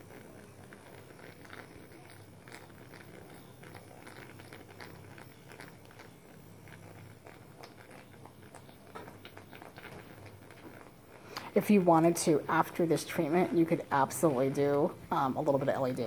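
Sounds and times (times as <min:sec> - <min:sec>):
small crackly clicks: 0:00.0 - 0:11.6.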